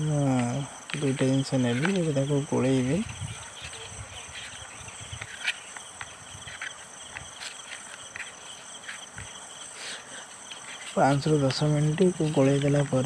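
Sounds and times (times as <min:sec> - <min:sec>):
crickets chirring: 0:00.0 - 0:13.0.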